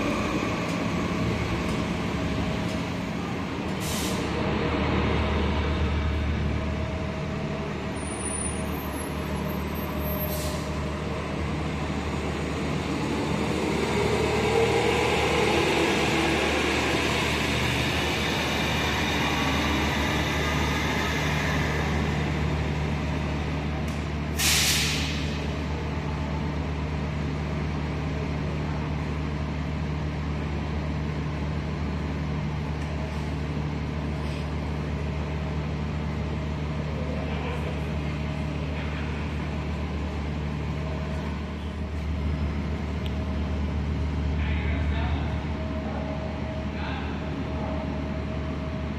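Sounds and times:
bus engine and drivetrain whine: 0.0s - 48.9s
air brake hiss: 3.8s - 4.3s, 10.2s - 10.8s, 24.3s - 25.4s.

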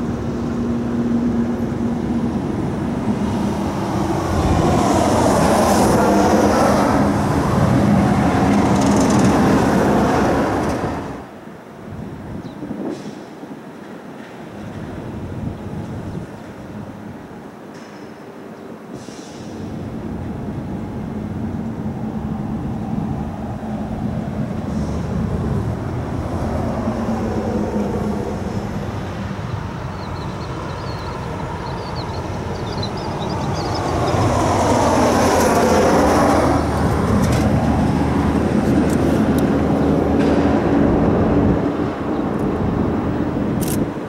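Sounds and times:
vehicle passing rumble: 19.6s - 43.8s.

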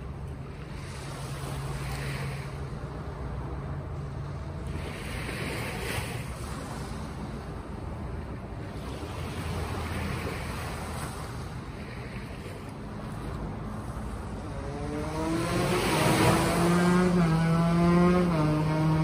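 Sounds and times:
sea waves: 0.0s - 19.0s
wind: 0.0s - 19.0s.

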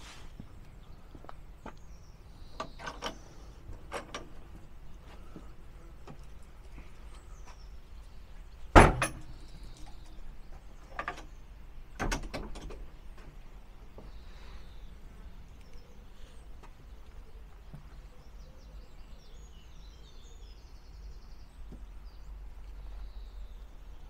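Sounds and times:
faint bird chirps: 13.9s - 24.0s.

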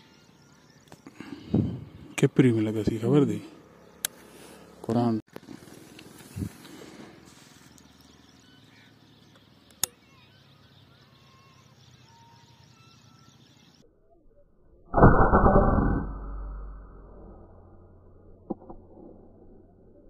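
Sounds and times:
faint sharp click: 9.3s - 10.0s
air rifle shot: 14.9s - 17.3s.

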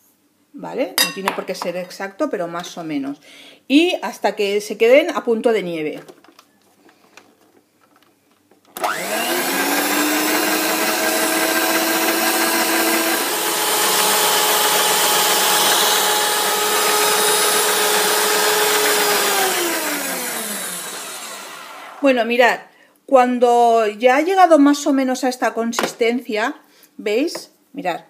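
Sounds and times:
electric stand mixer whirring: 8.8s - 22.0s.

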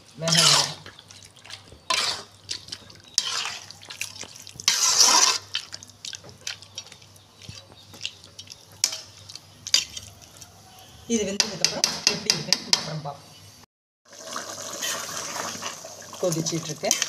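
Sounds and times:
ladle swishing in curry: 0.0s - 10.9s.

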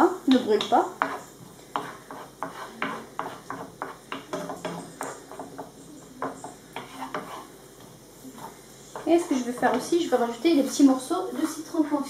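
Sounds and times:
onions sizzling: 0.0s - 12.0s
wooden spatula scraping a pan: 0.4s - 12.0s.

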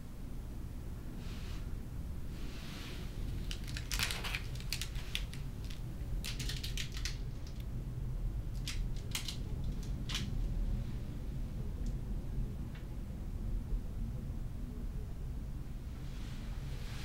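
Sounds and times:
steady low hum: 0.0s - 17.0s
plastic candy wrapper crinkling: 3.2s - 7.7s, 8.5s - 10.3s.

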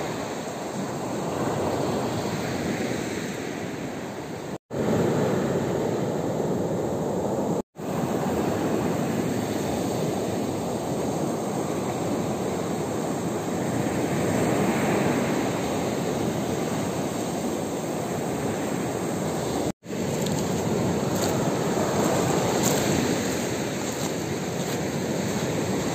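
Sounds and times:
surf washing up pebble beach: 0.0s - 25.9s.

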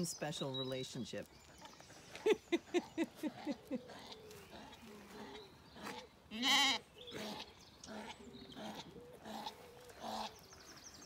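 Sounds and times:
sheep bleating: 6.3s - 7.4s.

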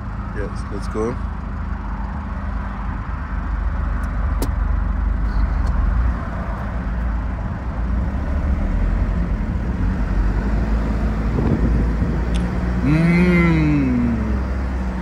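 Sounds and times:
truck engine pulling away: 7.9s - 15.0s.

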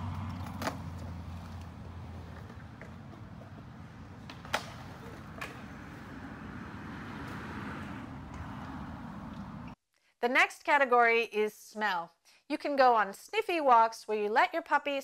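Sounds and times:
skateboards rolling on concrete: 0.0s - 9.8s
skateboard clacking on ground: 0.3s - 6.1s.

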